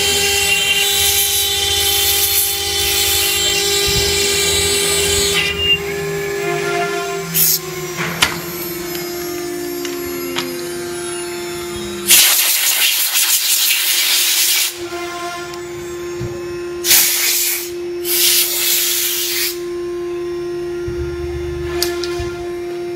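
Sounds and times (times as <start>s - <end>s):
cnc router spindle whine: 0.0s - 22.9s
loud hissing bursts: 12.0s - 14.8s, 16.8s - 19.6s.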